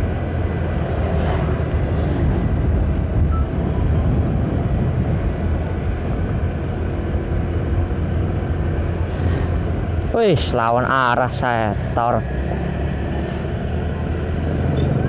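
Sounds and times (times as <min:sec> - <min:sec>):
wind noise on microphone: 0:00.0 - 0:10.0.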